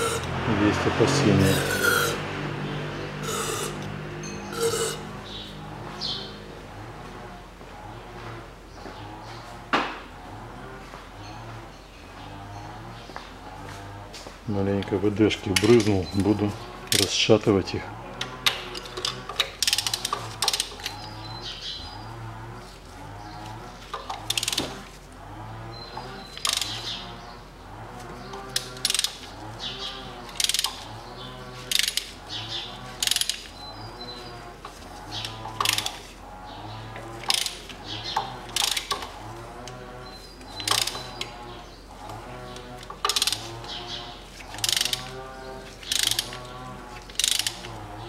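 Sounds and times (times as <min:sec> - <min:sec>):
ratchet wrench clicking: 0:18.4 - 0:21.0, 0:24.1 - 0:24.7, 0:26.4 - 0:26.8, 0:28.6 - 0:29.3, 0:30.3 - 0:30.9, 0:31.7 - 0:32.1, 0:33.0 - 0:33.6, 0:35.6 - 0:36.0, 0:37.2 - 0:37.7, 0:38.5 - 0:39.1, 0:40.6 - 0:41.3, 0:43.0 - 0:43.5, 0:44.5 - 0:45.1, 0:45.8 - 0:46.5, 0:47.1 - 0:47.7.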